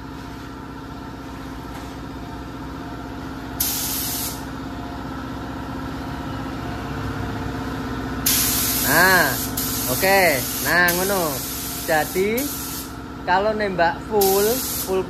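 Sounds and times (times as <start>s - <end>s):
steady machine hum: 0.0s - 15.0s
paint spray gun hiss: 3.6s - 4.5s, 8.2s - 12.9s, 14.2s - 15.0s.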